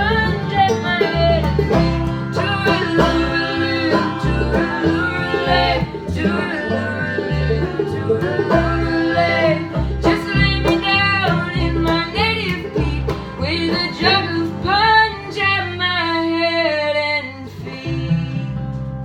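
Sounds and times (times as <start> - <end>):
bluegrass string band: 0.0 - 19.0
people singing harmony: 1.5 - 12.8.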